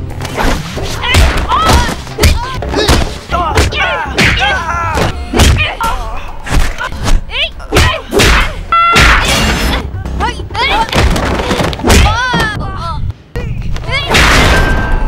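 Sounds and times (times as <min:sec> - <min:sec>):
punch and kick impacts: 0:00.2 - 0:05.8, 0:07.8 - 0:09.7, 0:11.0 - 0:12.3
fighters grunting and yelling: 0:01.0 - 0:09.6.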